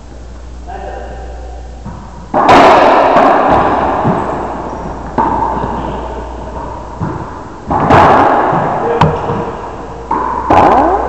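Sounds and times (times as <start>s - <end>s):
racquetball hits echoing: 1.8s - 11.0s.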